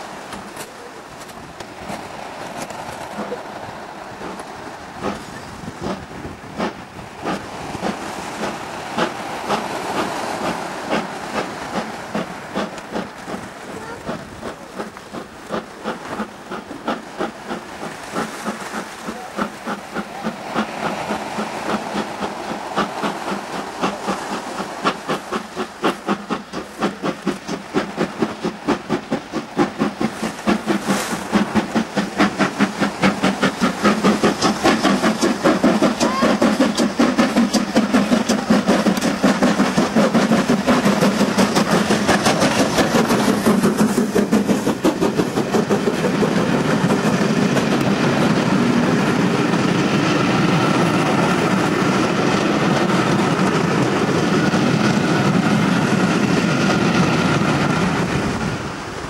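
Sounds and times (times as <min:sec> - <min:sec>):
steam locomotive exhaust beating: 0:00.0 - 0:59.0
train coaches passing: 0:00.0 - 0:59.0.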